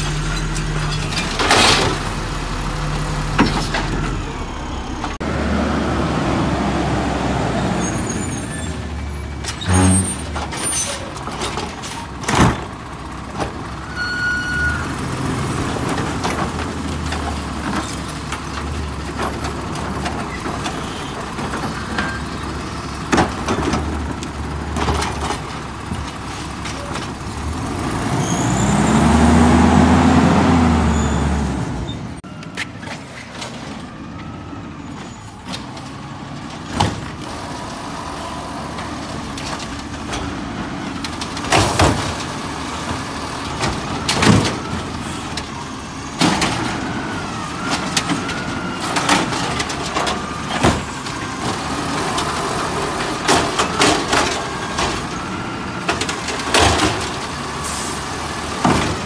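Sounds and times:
garbage truck engine running: 0:00.0 - 0:59.0.

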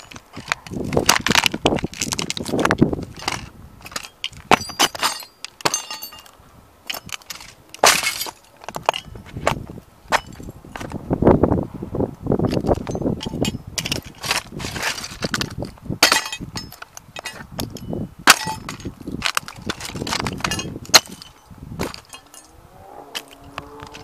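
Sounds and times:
plastic model cracking underfoot: 0:00.0 - 0:04.6, 0:19.0 - 0:21.1
shards scraping and crunching underfoot: 0:00.0 - 0:11.0, 0:12.4 - 0:24.0.

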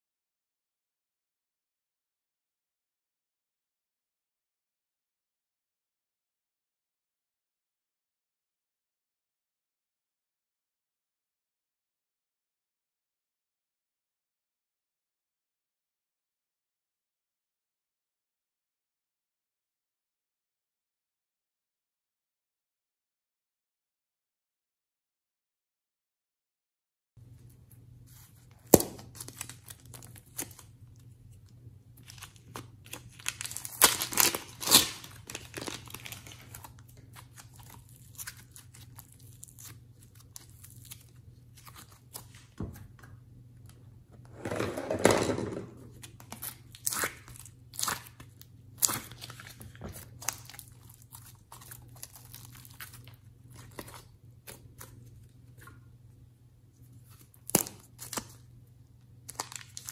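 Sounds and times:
plastic piping bags crinkling: 0:32.0 - 0:42.2, 0:46.0 - 0:54.0, 0:59.3 - 0:59.9.

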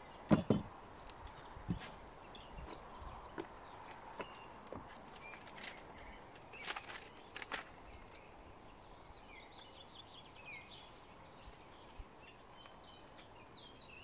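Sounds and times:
outdoor background noise: 0:00.0 - 0:14.0
papery rustle: 0:04.9 - 0:08.2.

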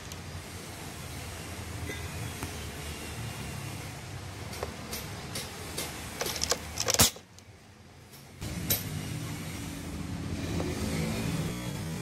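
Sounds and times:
handling clicks and clatter: 0:04.5 - 0:07.5.

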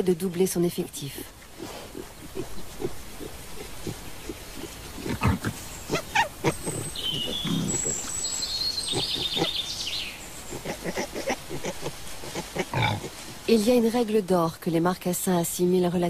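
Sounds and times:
wild boars grunting: 0:01.2 - 0:13.5
piglets squeaking: 0:01.6 - 0:13.2.

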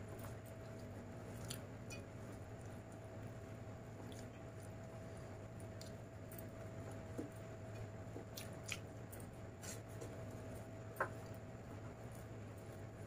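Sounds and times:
faint steady hum: 0:00.0 - 0:13.0
fingers squishing rice: 0:00.1 - 0:13.0.

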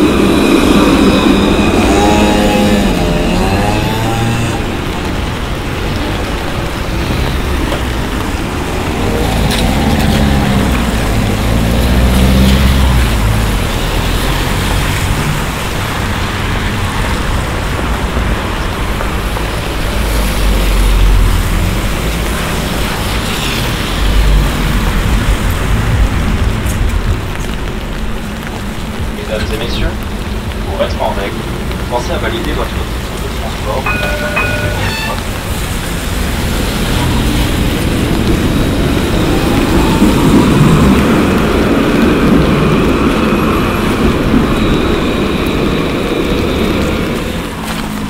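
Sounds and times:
vehicle engine passing: 0:00.0 - 0:15.8
low traffic rumble: 0:00.0 - 0:48.0
rain and tyres on wet road: 0:00.0 - 0:48.0.

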